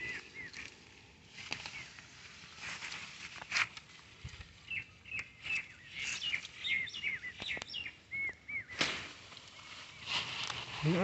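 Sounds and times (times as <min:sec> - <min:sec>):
small birds chirping: 0:00.0 - 0:10.6
soft rustling: 0:00.7 - 0:04.6.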